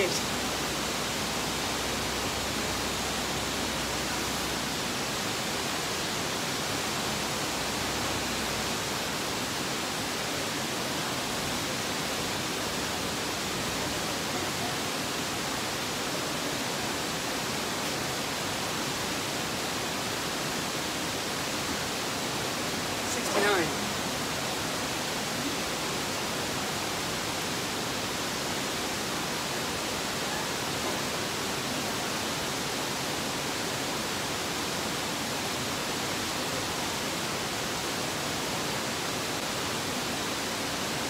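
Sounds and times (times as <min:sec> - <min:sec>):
steady hiss: 0:00.0 - 0:41.0.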